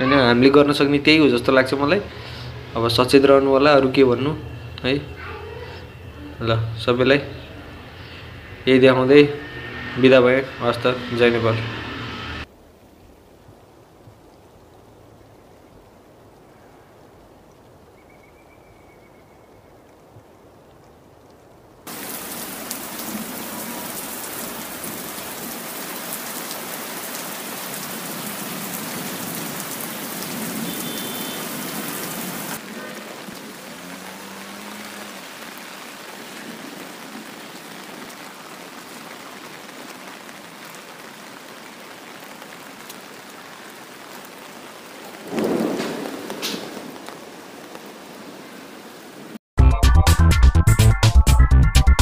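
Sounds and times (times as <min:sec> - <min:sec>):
rain falling: 0:00.0 - 0:11.7, 0:12.4 - 0:49.4.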